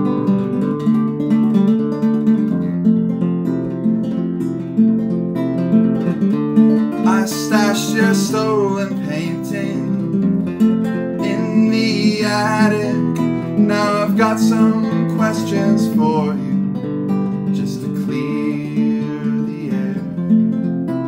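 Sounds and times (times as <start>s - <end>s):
classical guitar playing: 0.0s - 21.0s
man singing folk song: 6.9s - 20.6s.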